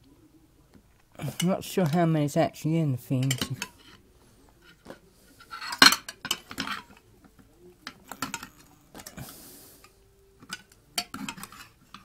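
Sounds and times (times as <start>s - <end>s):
knife scraping in metal tin: 11.0s - 12.0s.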